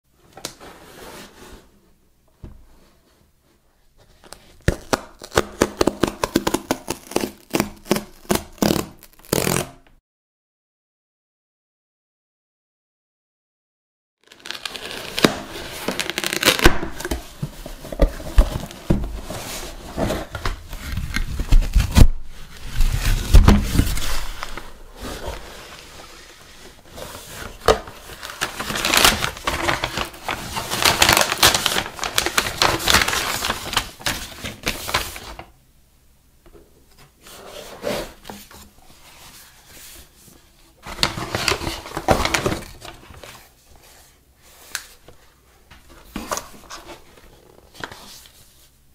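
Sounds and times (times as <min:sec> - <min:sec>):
cardboard and paper rustling: 0:14.3 - 0:35.5, 0:37.0 - 0:48.7.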